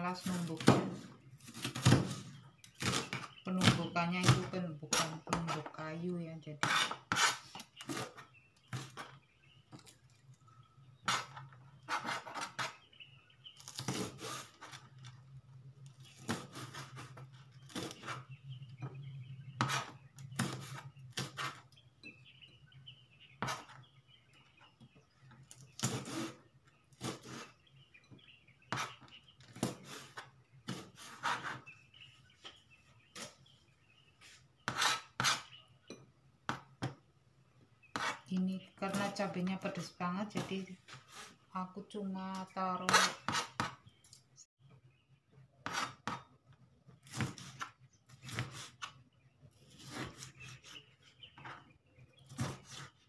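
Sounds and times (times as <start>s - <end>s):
knife chopping on plastic board: 42.9s - 43.8s.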